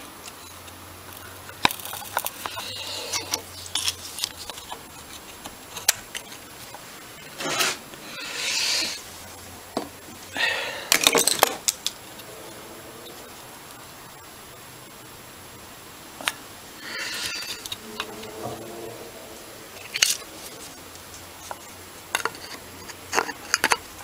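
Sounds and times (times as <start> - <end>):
metal tools clicking and scraping: 1.6 - 6.3, 10.9 - 12.0.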